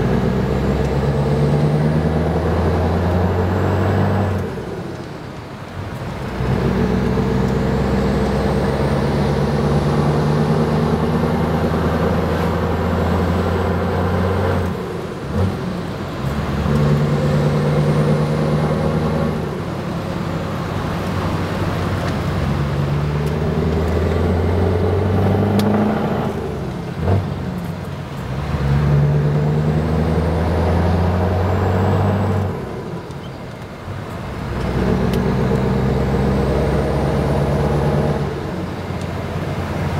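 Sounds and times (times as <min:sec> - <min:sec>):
diesel truck engine accelerating: 0:00.0 - 0:39.9.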